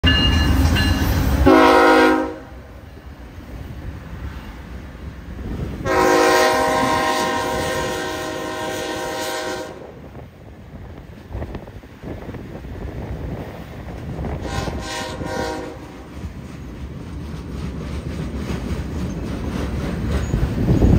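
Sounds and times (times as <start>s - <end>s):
train rumbling: 0.0s - 20.9s
locomotive air horn: 1.4s - 2.7s, 5.8s - 10.0s, 14.4s - 16.0s.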